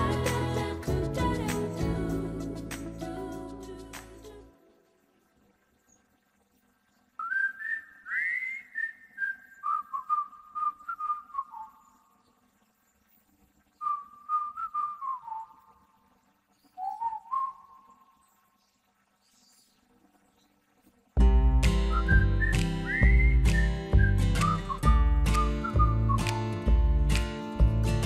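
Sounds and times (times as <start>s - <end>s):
whistled melody: 7.2s - 11.8s, 13.8s - 15.7s, 16.8s - 17.9s, 21.3s - 26.8s
faint low accompaniment: 21.2s - 28.0s.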